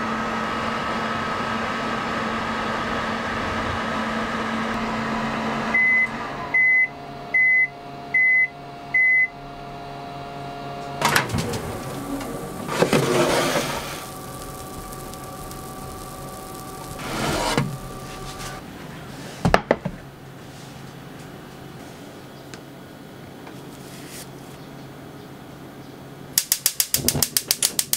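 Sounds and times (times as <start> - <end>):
oven fan hum: 0.0 - 27.9
oven short beeps: 5.8 - 9.4
oven door clicking open: 11.0 - 13.8.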